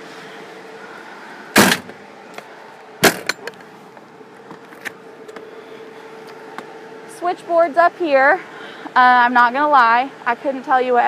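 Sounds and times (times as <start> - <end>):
compartment door banging shut: 3.0 - 3.5.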